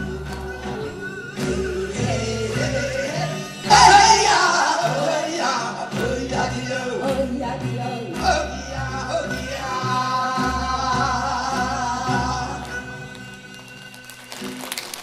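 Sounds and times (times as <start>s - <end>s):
performers singing: 0.0s - 13.2s.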